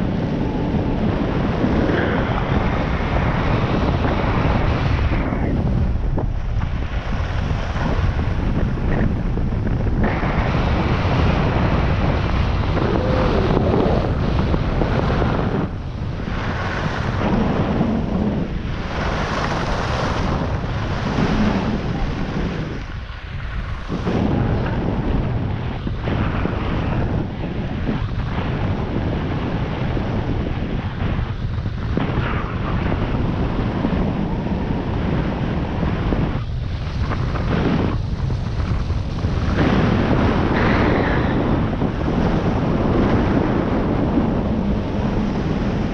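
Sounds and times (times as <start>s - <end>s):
wind buffeting microphone: 0.0s - 45.9s.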